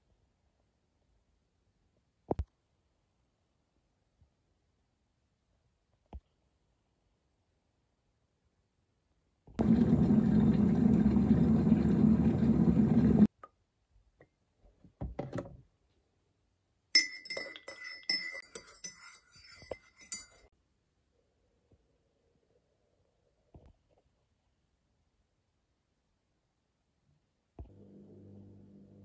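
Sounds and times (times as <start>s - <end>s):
teaspoon clinking in ceramic mug: 17.0s - 20.5s.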